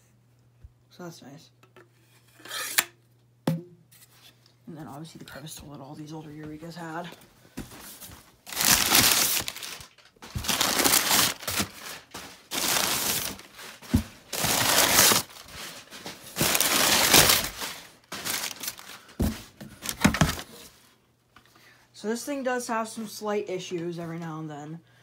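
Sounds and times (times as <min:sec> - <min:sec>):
packing paper rustling: 0:07.6 - 0:20.8.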